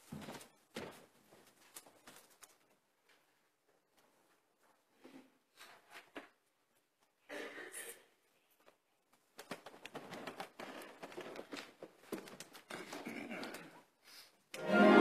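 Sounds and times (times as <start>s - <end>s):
choir rustling and shuffling: 14.6s - 15.0s.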